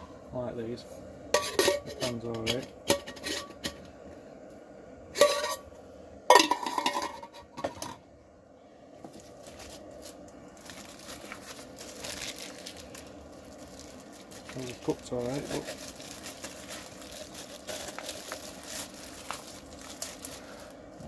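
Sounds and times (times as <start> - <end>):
metal pots clattering: 1.4 - 3.9, 5.2 - 5.7, 6.3 - 8.0
plastic bag rustling: 9.0 - 21.0.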